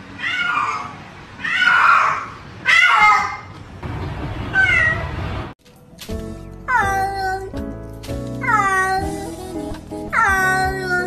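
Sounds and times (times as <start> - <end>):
cat meowing: 0.2 - 3.5, 4.5 - 5.0, 6.7 - 7.5, 8.4 - 9.3, 10.1 - 11.0.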